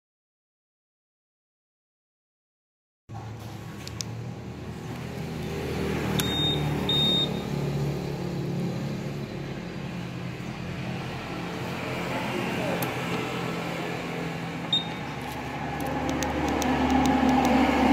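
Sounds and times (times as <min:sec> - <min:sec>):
short high beeps: 0:06.2 - 0:07.5, 0:14.7 - 0:15.0.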